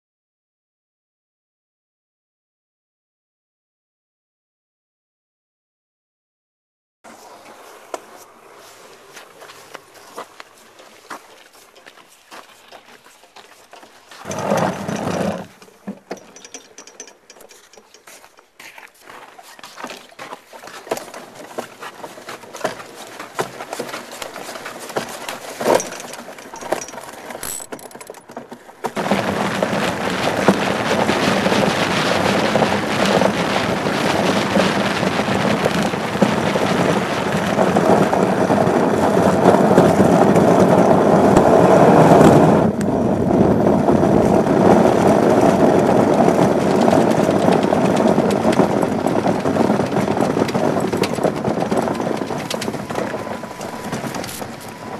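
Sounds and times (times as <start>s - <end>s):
steel runner grinding over ice: 9.9s - 28.2s, 44.9s - 54.9s.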